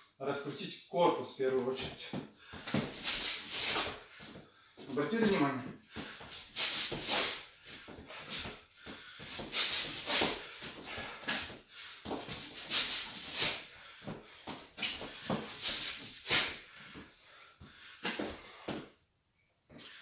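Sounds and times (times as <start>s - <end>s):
sharp hissing exhalations: 2.4s - 4.1s, 5.9s - 18.8s.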